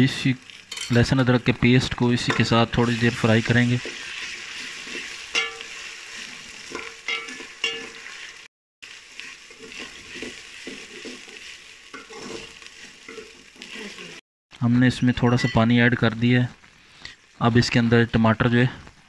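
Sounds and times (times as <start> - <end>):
onions sizzling in hot oil: 0.0 - 14.2, 15.6 - 19.0
metal ladle scraping pot: 3.8 - 8.0, 9.5 - 14.0.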